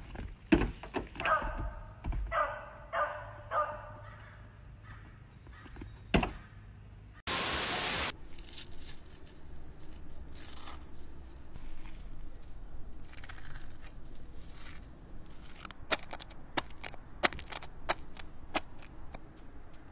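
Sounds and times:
tv static hiss: 0:07.3 - 0:08.1.

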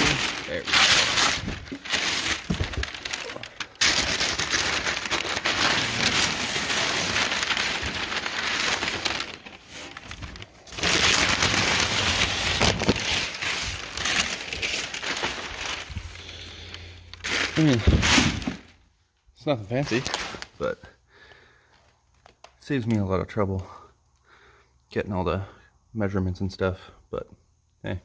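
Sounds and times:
packing paper rustling and crinkling: 0:00.0 - 0:18.8, 0:19.6 - 0:20.8.

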